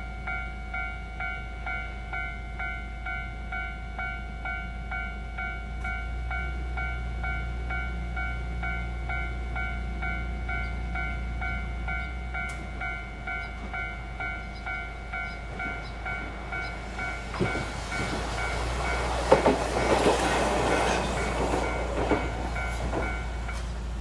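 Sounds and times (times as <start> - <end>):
level-crossing warning bell: 0.0 - 24.0
streetcar wheels clacking on track: 5.4 - 24.0.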